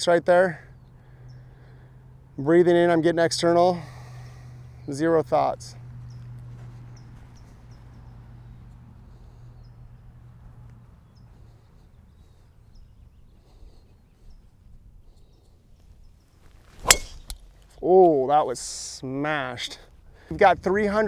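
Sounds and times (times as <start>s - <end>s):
low steady hum: 3.8s - 20.3s
golf club striking ball: 16.8s - 17.5s.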